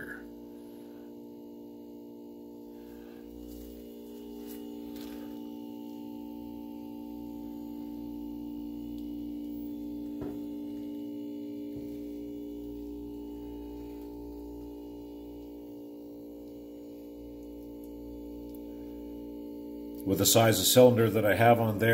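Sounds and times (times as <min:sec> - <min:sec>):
electrical hum: 0:00.0 - 0:21.9.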